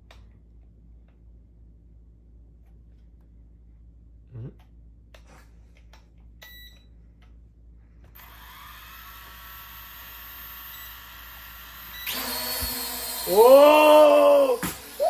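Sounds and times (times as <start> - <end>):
drone propellers whining: 12.0 - 15.0.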